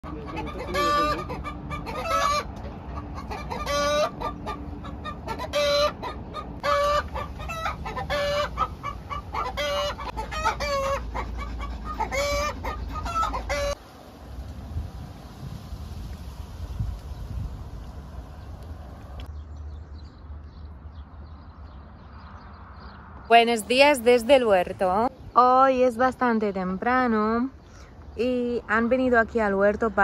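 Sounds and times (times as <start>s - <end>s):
chickens clucking and cackling: 0.0s - 13.8s.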